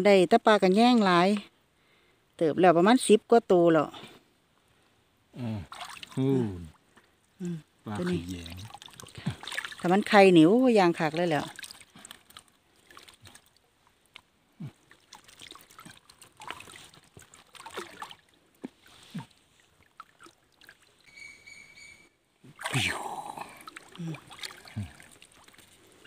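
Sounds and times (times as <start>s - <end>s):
water splashing and sloshing: 5.6s - 21.1s, 22.5s - 26.0s.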